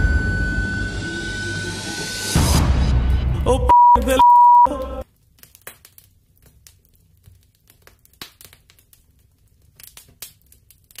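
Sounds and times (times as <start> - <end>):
crackling clicks and pops: 5.0 - 11.0.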